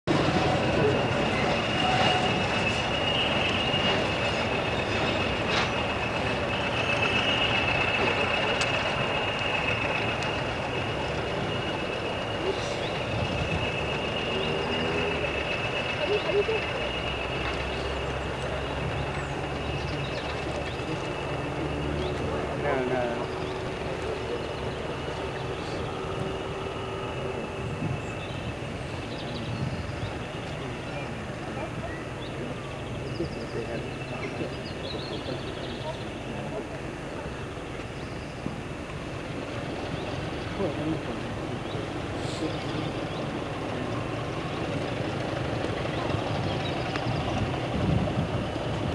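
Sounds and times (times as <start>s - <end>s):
diesel locomotive rumble: 0.0s - 48.9s
high-pitched squeal: 0.1s - 31.1s.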